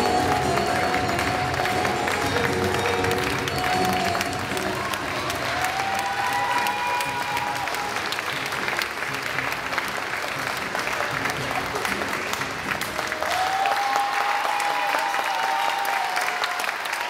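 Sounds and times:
long held high note: 0:00.0 - 0:08.3
people clapping: 0:00.0 - 0:17.0.

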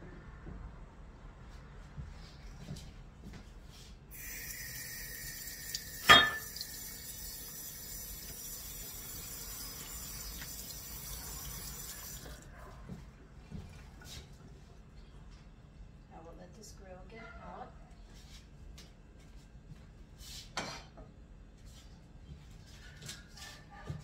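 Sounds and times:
kitchen tap running: 0:04.1 - 0:12.4.

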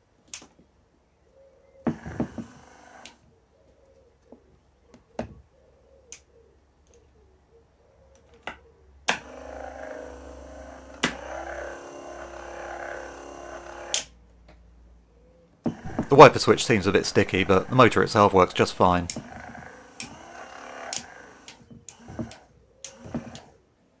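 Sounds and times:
electric motor whirring: 0:01.9 - 0:03.2, 0:09.1 - 0:14.1, 0:15.7 - 0:23.6.

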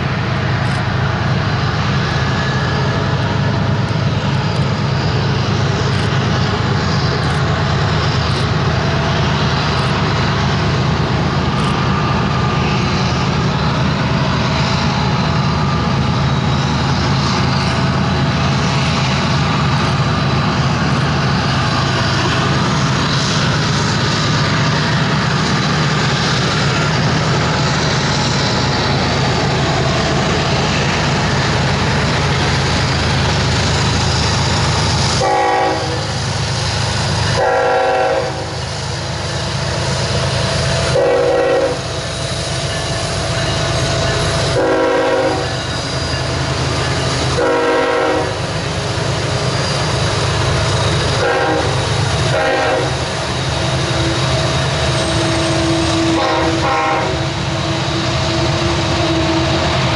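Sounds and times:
diesel locomotive engine rumble: 0:00.0 - 0:59.9
locomotive air horn: 0:35.2 - 0:36.2, 0:37.3 - 0:38.6, 0:40.9 - 0:41.9, 0:44.5 - 0:45.6, 0:47.3 - 0:48.5, 0:51.2 - 0:53.0, 0:55.4 - 0:57.4.

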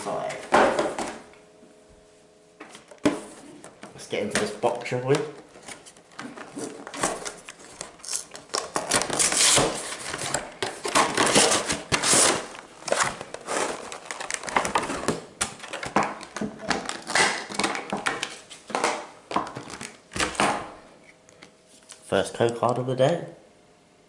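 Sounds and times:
cardboard and plastic rustling: 0:02.6 - 0:20.7.

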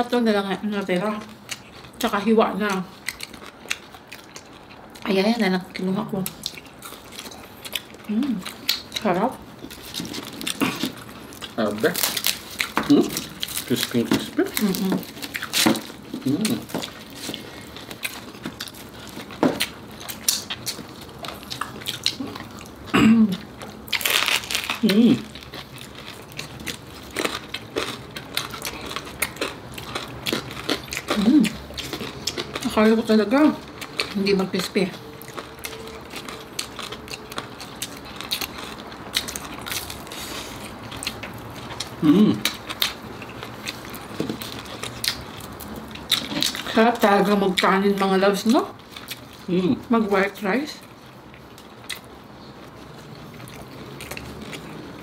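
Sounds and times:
crunchy chewing: 0:01.0 - 0:05.1, 0:05.7 - 0:49.5, 0:50.8 - 0:55.0
person humming: 0:42.0 - 0:42.4.

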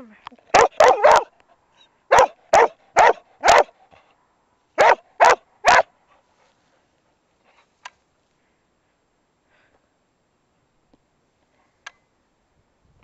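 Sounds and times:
dog barking: 0:00.5 - 0:01.4, 0:02.1 - 0:03.7, 0:04.8 - 0:05.9.

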